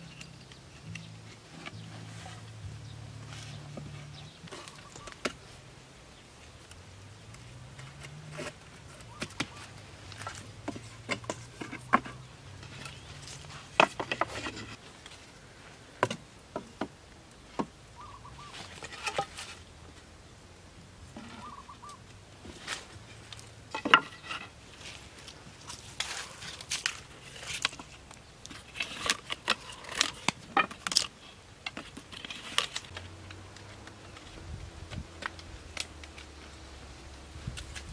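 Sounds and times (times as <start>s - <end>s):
wooden poles knocking: 8.0s - 13.0s, 13.7s - 14.8s, 23.7s - 24.5s.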